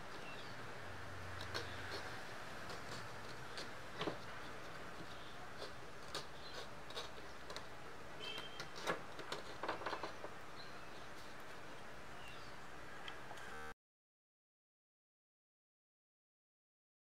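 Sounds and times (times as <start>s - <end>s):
gouge scratching gourd shell: 0.0s - 11.7s.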